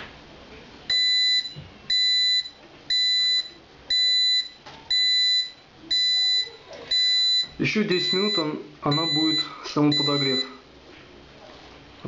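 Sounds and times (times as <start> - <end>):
high electronic beeps: 0.9 - 10.6.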